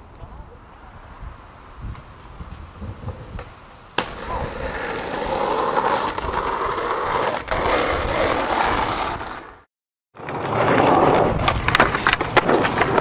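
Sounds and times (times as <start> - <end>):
skateboard wheels rolling on asphalt: 0.0 - 13.0
sharp skateboard clack: 2.8 - 5.1, 10.2 - 13.0.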